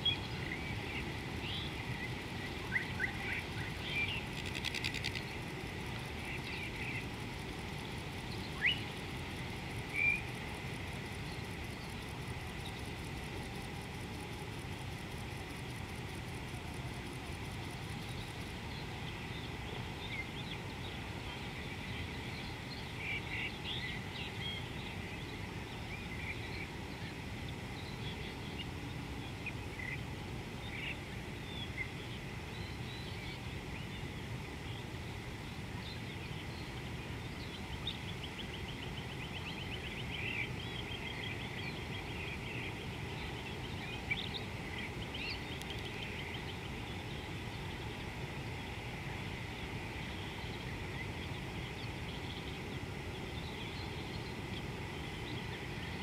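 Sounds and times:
low background noise: 0:00.0 - 0:56.0.

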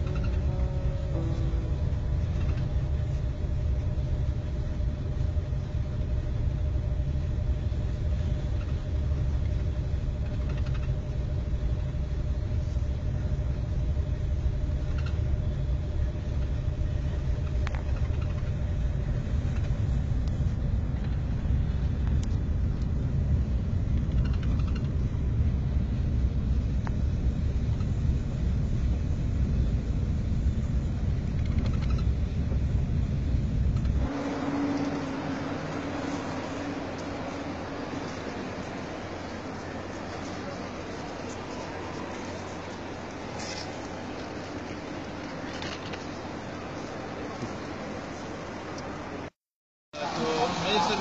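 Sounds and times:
faint steady tone: 0:00.0 - 0:30.9
train cabin rumble: 0:00.0 - 0:49.2.

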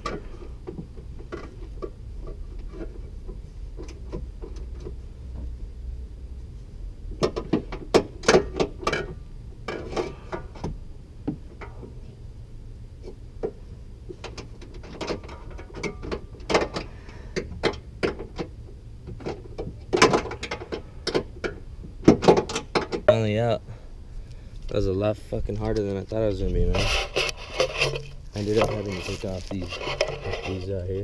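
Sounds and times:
metallic clanks and scraping: 0:00.0 - 0:05.0, 0:07.2 - 0:10.7, 0:13.0 - 0:18.5, 0:19.1 - 0:23.3, 0:24.6 - 0:31.0.

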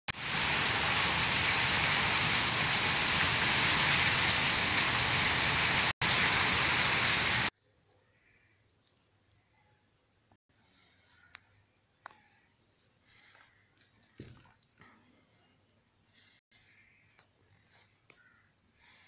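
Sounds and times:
heavy rain pouring: 0:00.1 - 0:07.5.

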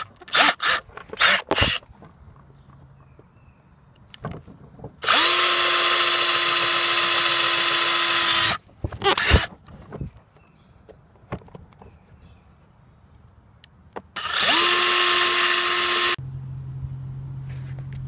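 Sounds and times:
cordless drill whining: 0:00.0 - 0:01.8, 0:05.0 - 0:09.5, 0:14.2 - 0:16.2.

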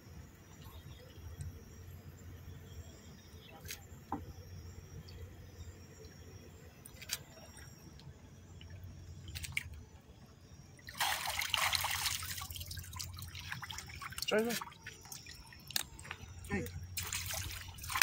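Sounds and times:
splashing in shallow water: 0:10.9 - 0:15.8, 0:17.0 - 0:18.0.

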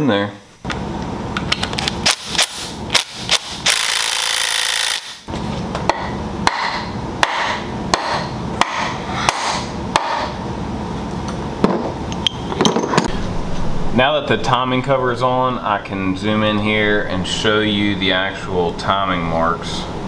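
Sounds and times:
cordless drill driving bolts: 0:03.3 - 0:05.2.

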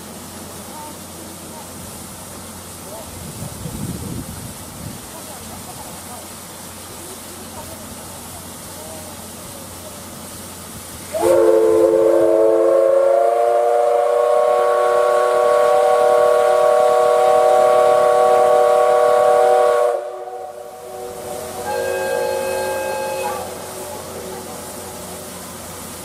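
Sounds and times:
steam locomotive whistle: 0:11.1 - 0:25.0.

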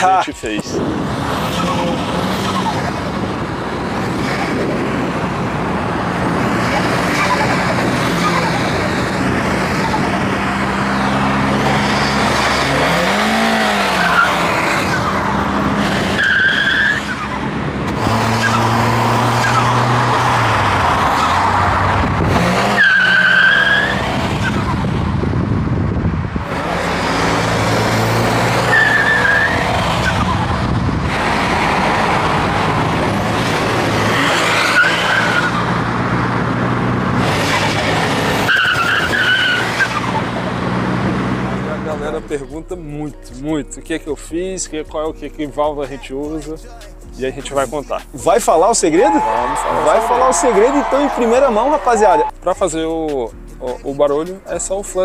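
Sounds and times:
car engine revving: 0:00.0 - 0:42.9.

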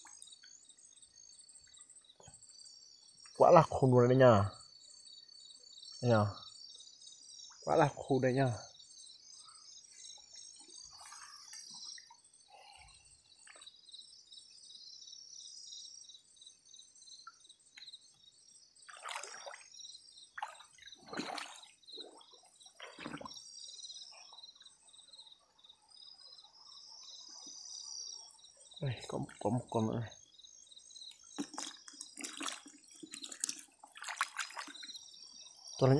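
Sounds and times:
crickets chirping: 0:00.0 - 0:35.9
hands splashing shallow water: 0:18.9 - 0:19.7, 0:20.4 - 0:21.7, 0:31.4 - 0:34.9.

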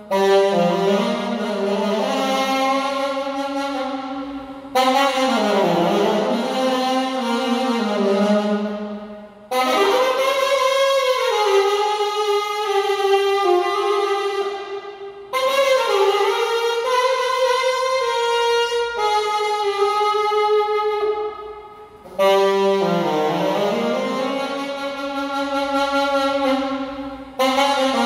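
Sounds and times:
alto saxophone playing: 0:00.0 - 0:28.0.

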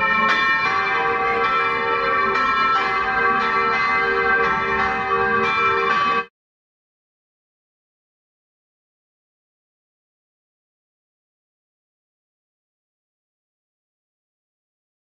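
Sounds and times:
church bells ringing: 0:00.0 - 0:06.3.

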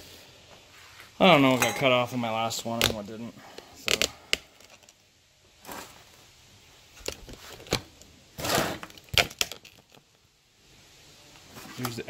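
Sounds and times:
glasses and cans set down on steel: 0:01.5 - 0:02.0.

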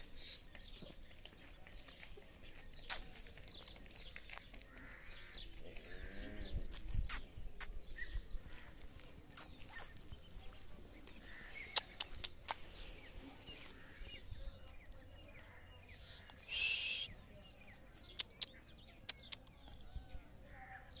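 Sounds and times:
footsteps on sandy dirt: 0:00.0 - 0:16.4
small birds chirping: 0:00.0 - 0:21.0.

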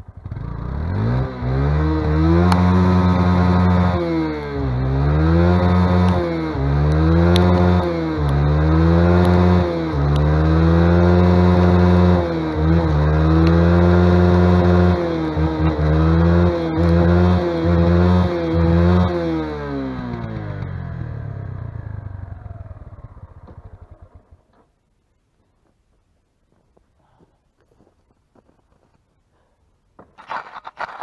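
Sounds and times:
motorcycle engine revving: 0:00.0 - 0:24.6.

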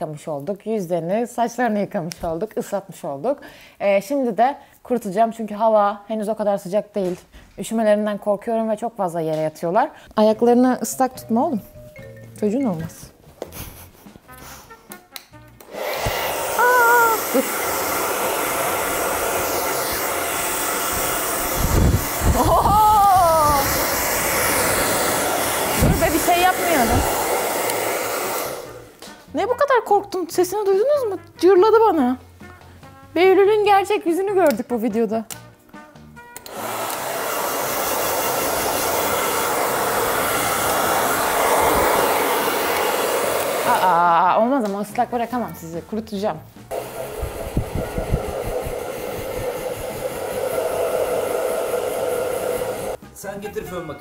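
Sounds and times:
hair dryer blowing: 0:15.6 - 0:29.0, 0:36.4 - 0:44.4, 0:46.7 - 0:53.0.

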